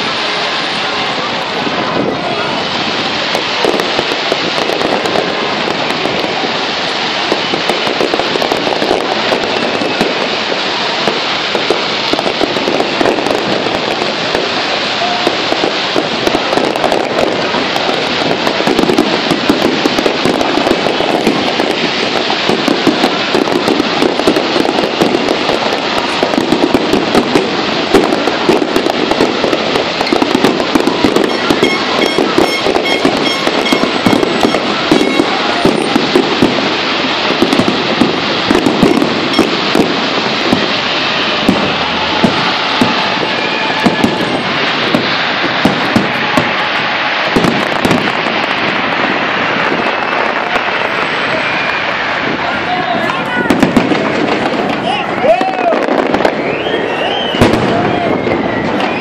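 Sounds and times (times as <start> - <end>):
fireworks bursts and crackling: 0.0 - 59.0.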